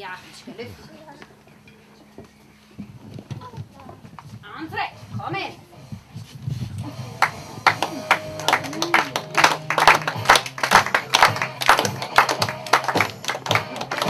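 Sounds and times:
music: 3.9 - 14.0
people clapping in time: 7.0 - 14.0.

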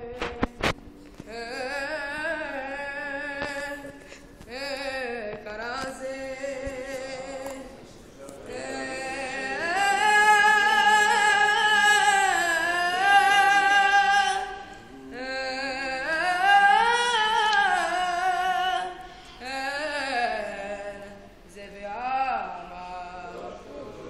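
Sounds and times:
boy singing unaccompanied: 1.2 - 7.8, 8.4 - 23.6.

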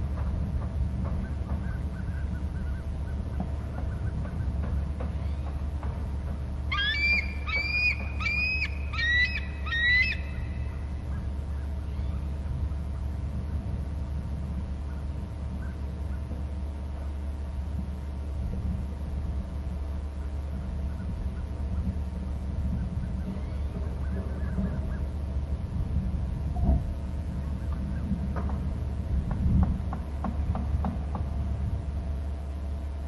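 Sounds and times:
steady low hum: 0.0 - 33.0
eagle screeching: 6.6 - 11.2.

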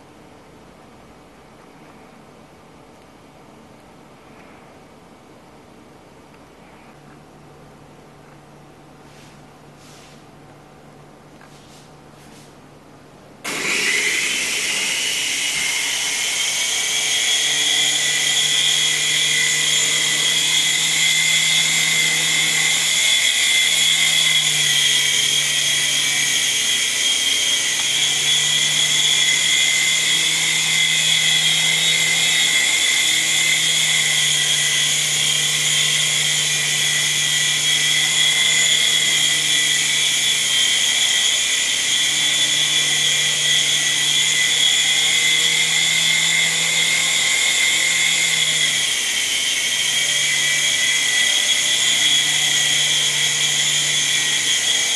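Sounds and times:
toy helicopter motor whine: 13.4 - 54.9.

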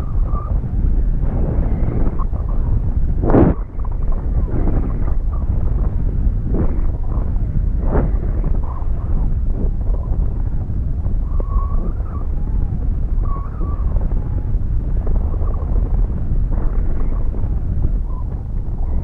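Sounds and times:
faint wavering whistle: 0.0 - 5.5, 11.1 - 15.9, 18.0 - 19.0
wind buffeting microphone: 0.0 - 19.0.

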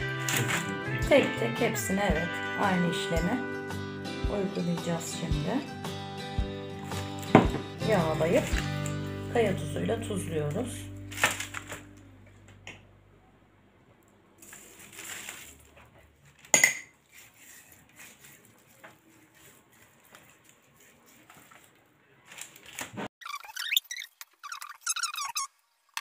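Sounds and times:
parchment paper rustling: 0.2 - 0.9, 11.1 - 12.0, 14.4 - 23.1
squeaky rubbing: 23.2 - 25.6.

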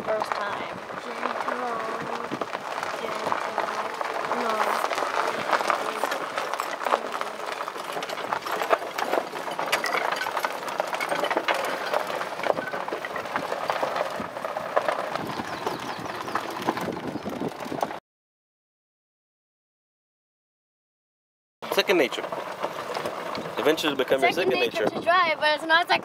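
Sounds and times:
wind on microphone: 0.0 - 7.5, 12.4 - 18.0, 24.3 - 26.0
cart clattering and rattling: 0.0 - 18.0, 21.6 - 26.0
golf cart motor running: 0.0 - 18.0, 21.6 - 26.0.

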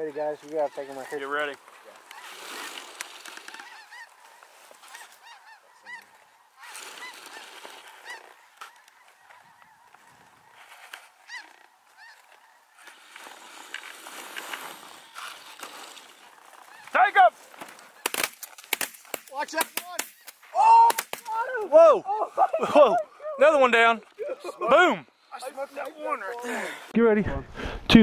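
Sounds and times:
geese yelping and honking: 0.1 - 18.1.

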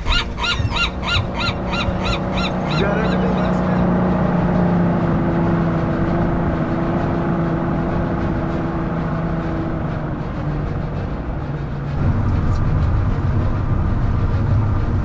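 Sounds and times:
fast honking calls: 0.0 - 3.8
boat engine running: 0.0 - 15.0.

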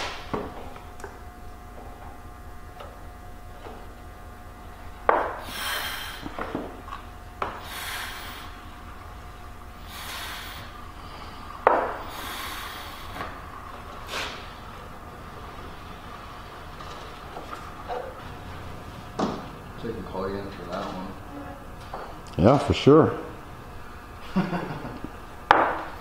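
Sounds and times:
hand pump hissing whoosh: 5.4 - 6.3, 7.6 - 8.5, 9.8 - 10.8, 12.0 - 13.3.

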